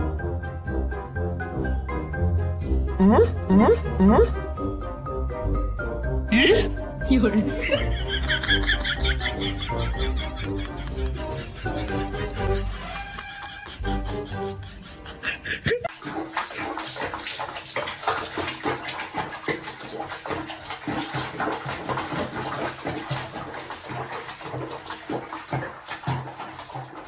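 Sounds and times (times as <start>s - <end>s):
water splashing in bathtub: 6.3s - 14.2s, 15.6s - 27.0s.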